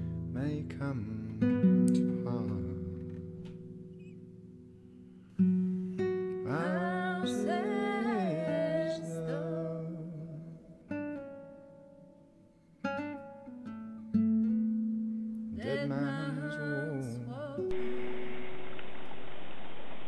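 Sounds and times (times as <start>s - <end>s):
plucked acoustic guitar: 0.0s - 19.2s
person singing: 6.4s - 10.7s, 15.5s - 17.9s.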